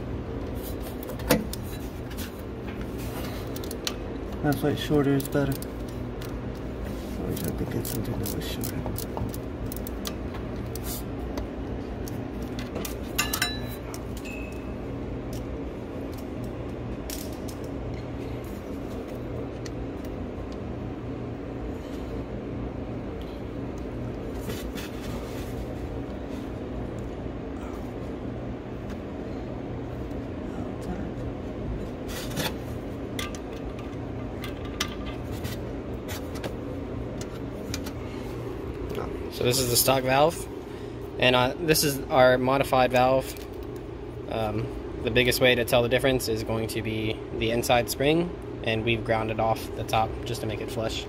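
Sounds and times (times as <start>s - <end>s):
steady low hum: 0.0s - 51.0s
metal tools clinking: 13.1s - 14.6s
ringing metallic clink: 13.2s - 14.5s.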